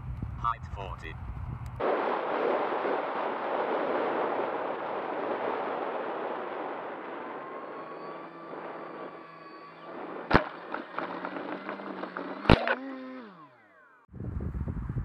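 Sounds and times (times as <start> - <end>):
faint hum: 0.0 - 15.0
rushing airflow of model plane: 3.6 - 15.0.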